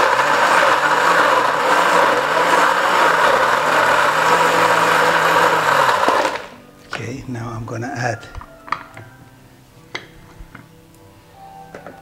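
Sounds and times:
blender crushing ice: 0.0s - 6.6s.

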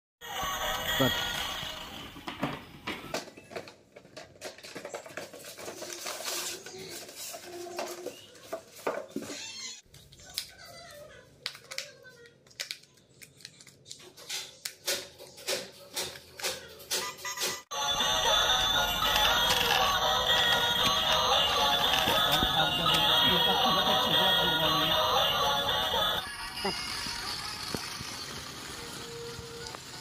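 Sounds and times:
cardboard and polystyrene rustling: 4.2s - 8.9s.

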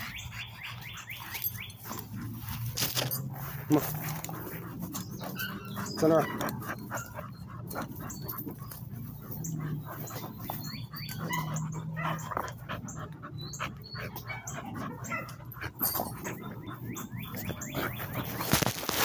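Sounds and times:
dogs whining: 0.0s - 19.0s
light clicks and rustles: 1.2s - 5.4s.

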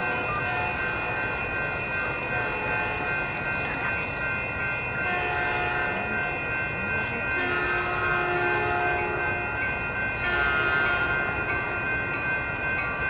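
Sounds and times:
crossing warning bells ringing: 0.0s - 13.0s
distant train approaching: 0.0s - 13.0s
train horn: 5.1s - 9.4s, 10.2s - 11.4s.

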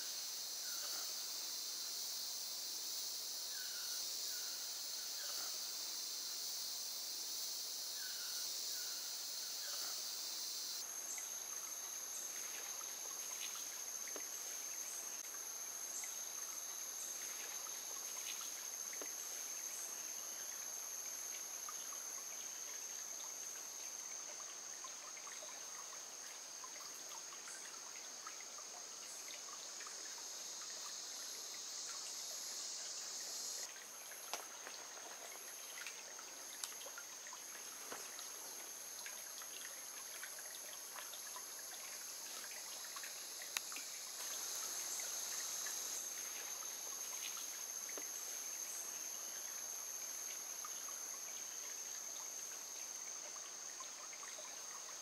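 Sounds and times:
insects trilling: 0.0s - 55.0s
stream trickling: 0.0s - 55.0s
light ticks: 43.5s - 43.9s.

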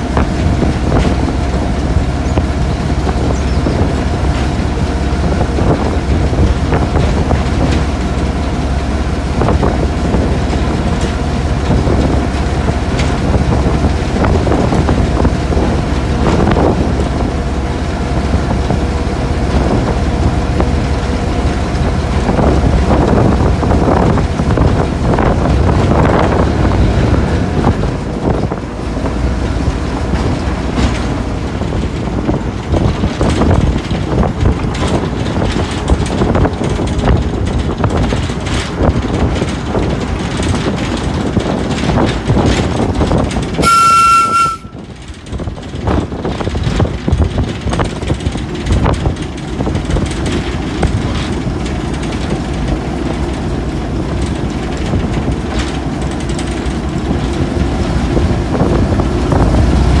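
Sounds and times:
locomotive rumble: 0.0s - 60.0s
wheels clicking over rail joints: 0.0s - 60.0s
locomotive horn blast: 43.6s - 44.9s.

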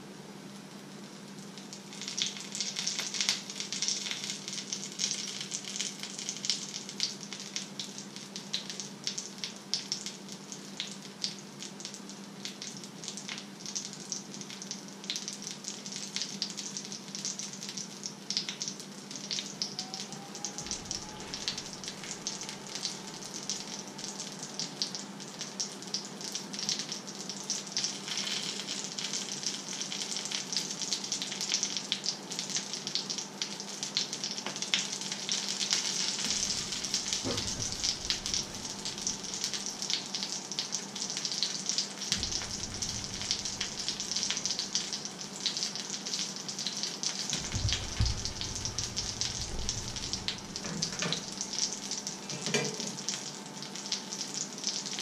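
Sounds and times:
food sizzling in a pan: 1.1s - 55.0s
steady low hum: 36.2s - 39.8s, 42.1s - 44.8s, 47.4s - 51.5s.

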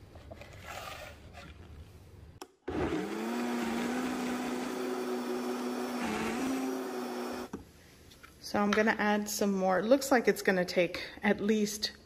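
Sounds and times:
blender motor humming: 2.7s - 7.5s.

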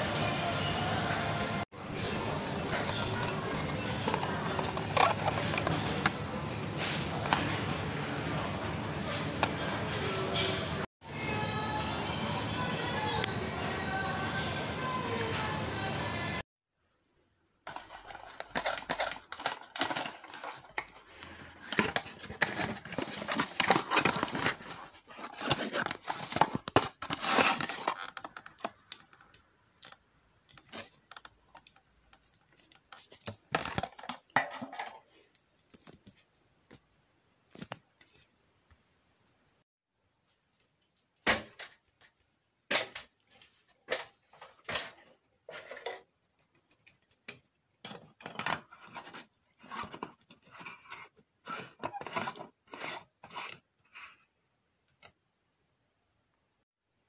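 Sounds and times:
clicks and scrapes of handling: 1.9s - 8.4s, 17.7s - 36.8s, 37.5s - 39.4s, 42.7s - 54.3s
cardboard packaging tearing: 17.7s - 28.8s.

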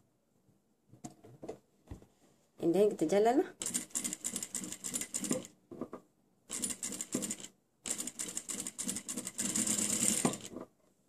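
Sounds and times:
sewing machine stitching: 3.6s - 5.6s, 6.5s - 10.7s.

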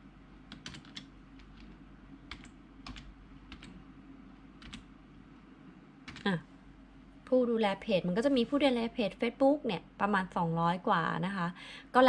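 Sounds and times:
faint low hum: 0.0s - 12.0s
computer keyboard typing: 0.5s - 3.8s, 4.6s - 4.9s, 6.1s - 6.3s.

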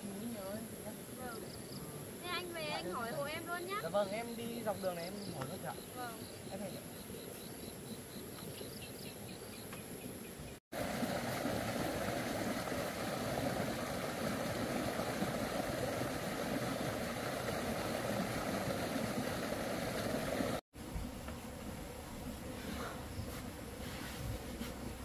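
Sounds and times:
faint rapid insect ticking: 0.0s - 10.6s.

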